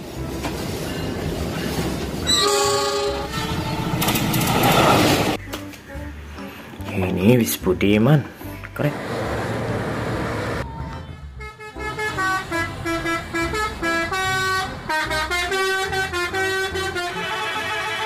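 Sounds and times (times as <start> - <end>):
traffic noise: 0.0 - 7.0, 8.2 - 18.0
musical bus horn: 2.2 - 4.5, 11.0 - 18.0.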